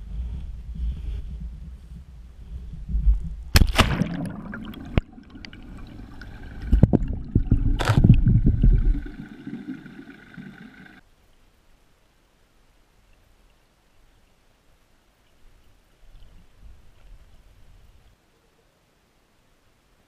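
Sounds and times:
muffled water splashing: 0.0 - 11.0
water gurgling: 3.6 - 11.0.

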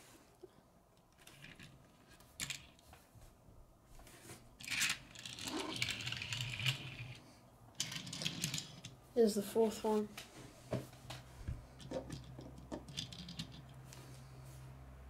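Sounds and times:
toy car rolling on wood: 1.1 - 2.8, 4.6 - 9.0, 11.8 - 13.8.

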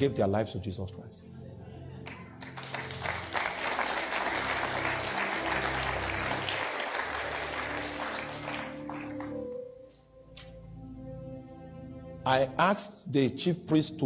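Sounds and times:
soft background music: 0.0 - 14.0
congregation applauding: 2.0 - 9.7.

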